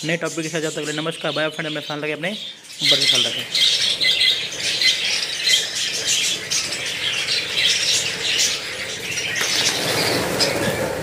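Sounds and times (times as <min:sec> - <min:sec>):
budgerigars chattering and squawking: 0:00.0 - 0:11.0
flapping wings: 0:09.2 - 0:11.0.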